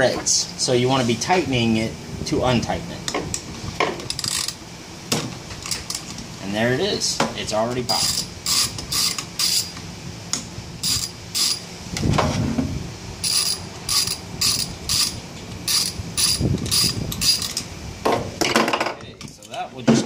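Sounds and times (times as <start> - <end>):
ratchet wrench clicking: 4.1 - 4.6, 7.9 - 9.8, 10.8 - 11.6, 13.2 - 17.7.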